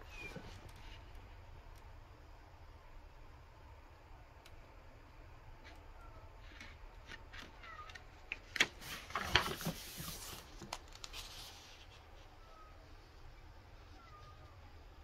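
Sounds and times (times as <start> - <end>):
paper pages rustling: 6.4 - 12.3.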